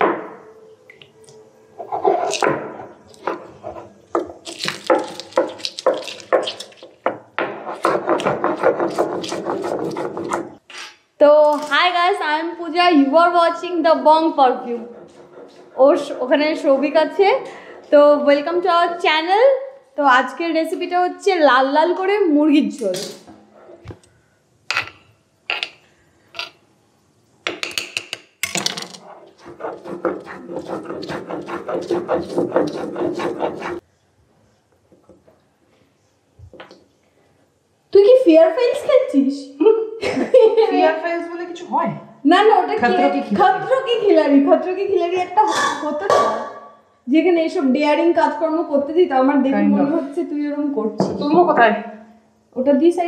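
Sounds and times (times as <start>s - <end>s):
stone rubbing and knocking on stone: 1.8s - 10.9s, 24.7s - 26.6s, 27.5s - 33.8s.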